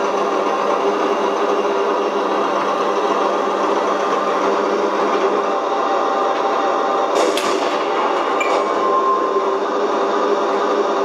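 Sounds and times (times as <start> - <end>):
simulated tank engine idling: 0.0 - 8.4.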